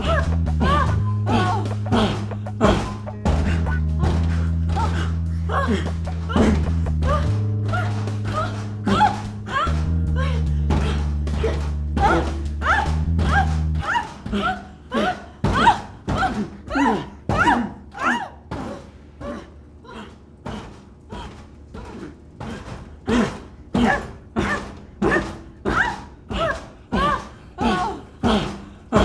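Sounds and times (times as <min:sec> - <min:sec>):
dull thumps: 0:00.0 - 0:17.9
woman's rhythmic moans: 0:00.0 - 0:29.0.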